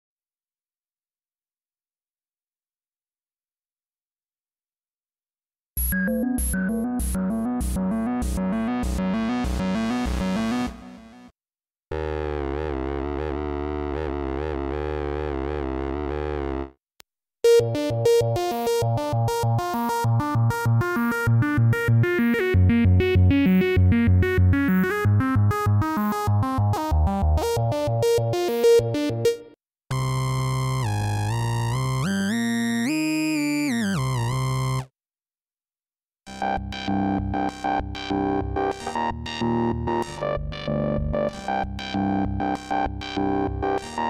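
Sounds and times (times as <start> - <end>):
pulsing bass line: 5.8 - 10.9, 17.6 - 29.2
synthesizer arpeggio: 5.9 - 11.0, 17.4 - 32.9.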